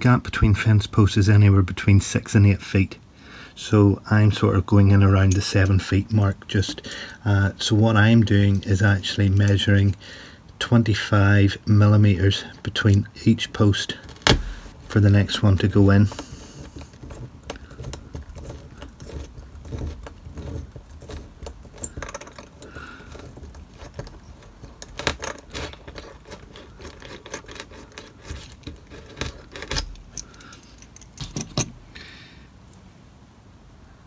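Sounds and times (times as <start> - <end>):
hand drill scratching: 13.6 - 31.8
small metallic clicks: 13.9 - 32.0.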